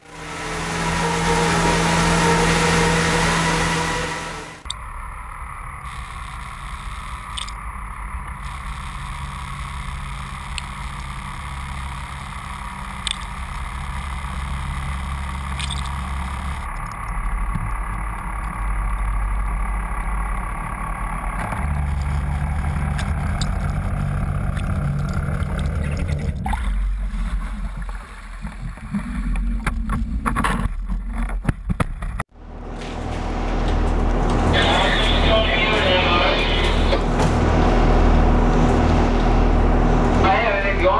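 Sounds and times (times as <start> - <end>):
boat engine humming: 0.0 - 31.2, 32.3 - 40.9
water noise: 21.9 - 31.3.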